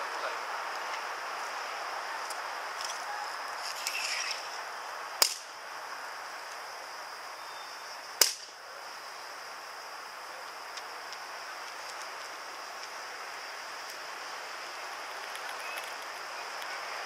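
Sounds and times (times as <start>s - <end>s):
sharp cracks of boots on paving: 5.2s - 5.5s, 8.2s - 8.5s.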